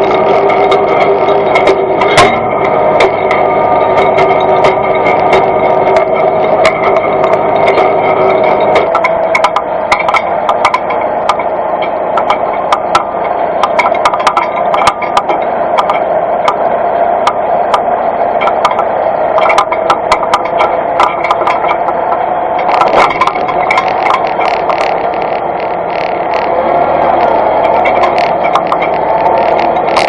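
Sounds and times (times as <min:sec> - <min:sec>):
towed machinery clicking and rattling: 0:00.0 - 0:30.0
tractor running: 0:00.0 - 0:30.0.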